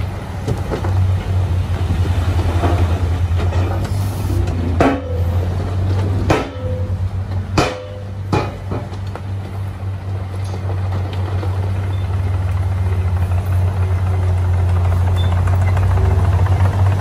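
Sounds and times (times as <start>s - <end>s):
diesel engines running: 0.0s - 17.0s
dirt and rock unloading: 0.0s - 17.0s
sharp metallic bangs: 4.6s - 9.0s.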